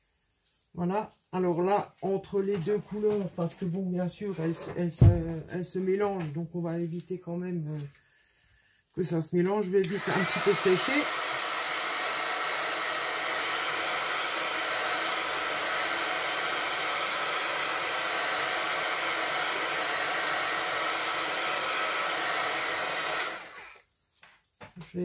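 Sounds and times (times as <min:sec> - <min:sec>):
heat gun blowing: 0:09.8 - 0:23.9.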